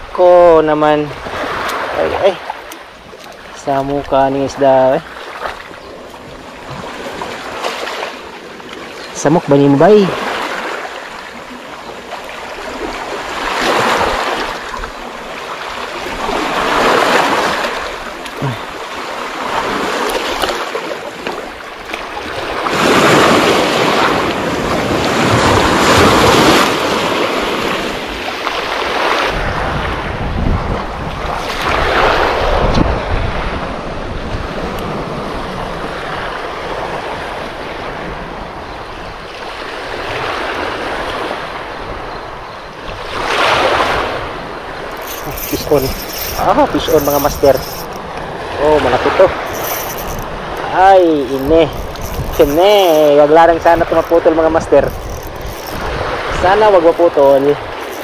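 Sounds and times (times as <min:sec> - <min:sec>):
waves washing on pebble beach: 0:00.2 - 0:30.2, 0:30.9 - 0:38.4, 0:42.9 - 0:58.0
wind buffeting microphone: 0:28.9 - 0:39.3, 0:41.6 - 0:58.0.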